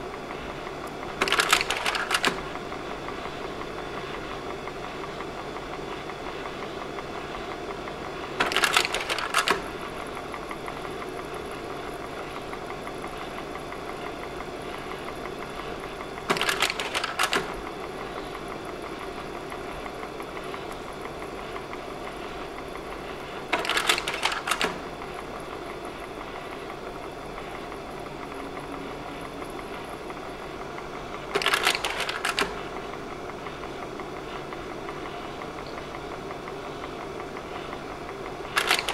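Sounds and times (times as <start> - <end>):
projector fan hum: 0.0 - 38.9.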